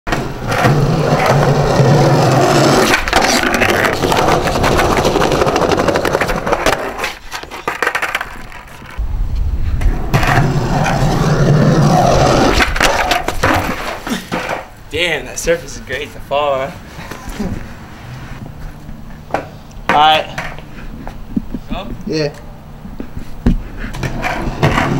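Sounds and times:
skateboard wheels rolling on concrete: 0.1 - 24.9
skateboard pop and landing clatter: 12.5 - 14.7.

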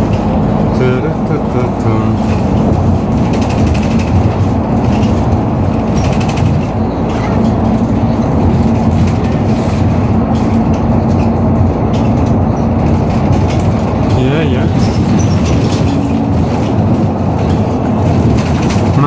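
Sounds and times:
bus engine and road rumble: 0.0 - 19.0.

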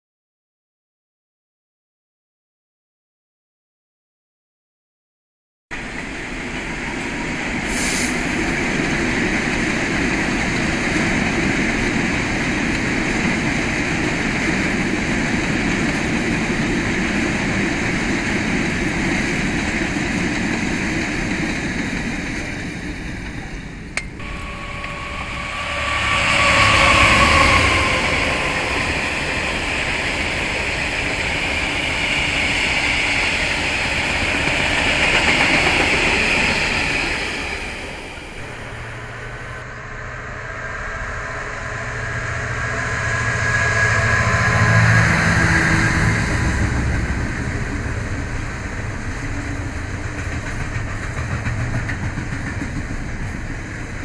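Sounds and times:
freight train rumbling over rails: 5.8 - 54.0
faint falling whine: 24.0 - 31.8, 37.4 - 48.5.

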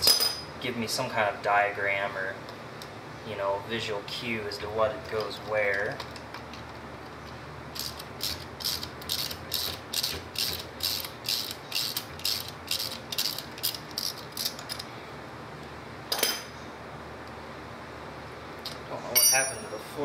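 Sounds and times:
metal clink: 0.0 - 0.5, 19.1 - 19.9
ratchet wrench clicking: 7.7 - 14.9.

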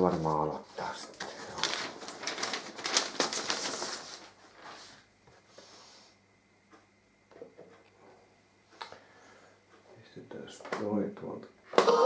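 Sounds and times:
paper record sleeve rustling: 0.0 - 5.1.

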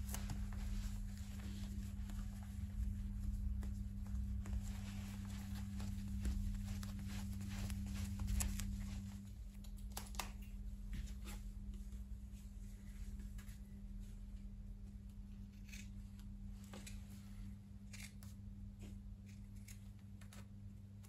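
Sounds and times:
suede rubbing rustles: 0.0 - 9.6
steady low hum: 0.0 - 21.0.

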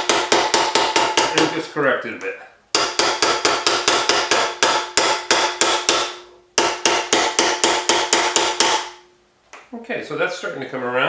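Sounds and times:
rapid hammer blows on metal: 2.8 - 8.9.

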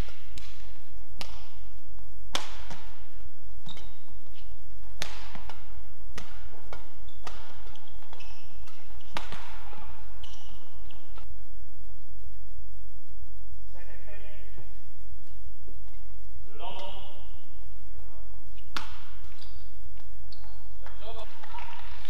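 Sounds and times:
rackets hitting shuttlecock: 0.0 - 11.4, 16.7 - 17.2, 18.5 - 22.0
steady low hum: 0.0 - 20.9
shoes squeaking on court: 3.6 - 11.3, 18.5 - 22.0.

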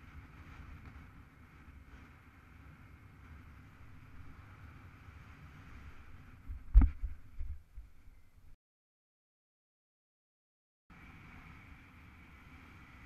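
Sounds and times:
wind rushing over microphone: 0.0 - 8.6.

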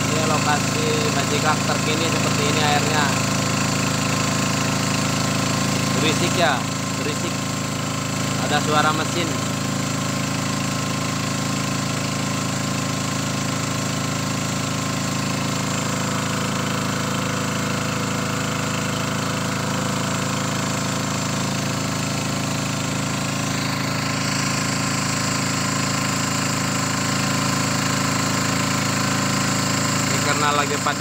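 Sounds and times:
boat engine running: 0.0 - 31.0.

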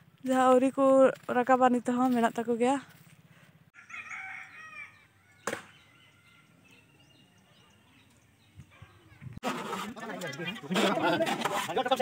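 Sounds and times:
small birds chirping: 4.4 - 9.4.

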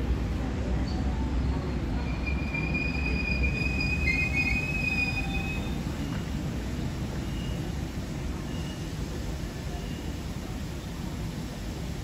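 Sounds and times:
low rumble of train: 0.0 - 12.0
train wheels squealing: 0.8 - 6.2, 7.2 - 7.7, 8.4 - 8.9.

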